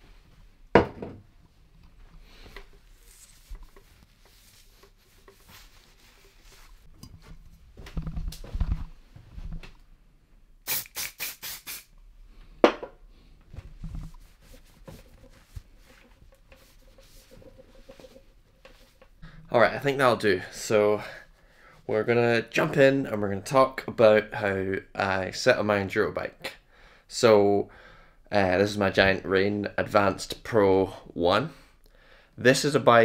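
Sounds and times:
cloth wiping bike frame: 2.2s - 6.9s, 13.5s - 19.2s
spray can squirts: 10.6s - 11.9s.

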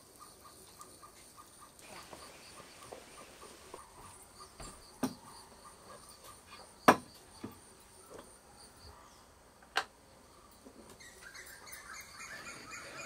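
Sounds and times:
insects chirring: 0.0s - 9.0s.

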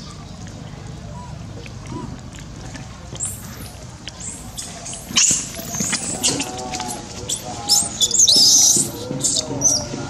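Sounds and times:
monkeys squealing and screeching: 3.2s - 10.0s.

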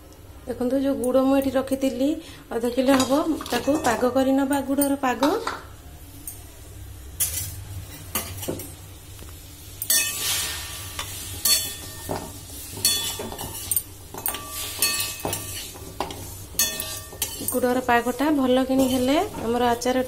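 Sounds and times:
light sizzle: 0.0s - 20.0s
spatula scraping metal pan: 9.9s - 17.7s.

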